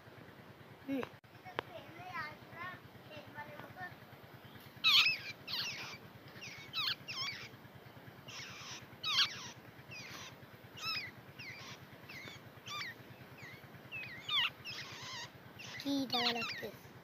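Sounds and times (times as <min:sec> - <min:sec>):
nestlings squealing calls: 0:04.4 - 0:16.9.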